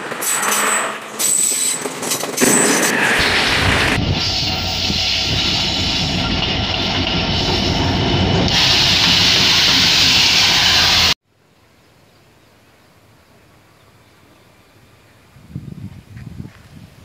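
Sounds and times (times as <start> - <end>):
diesel train passing: 0.0 - 11.2
faint outdoor background: 11.2 - 17.0.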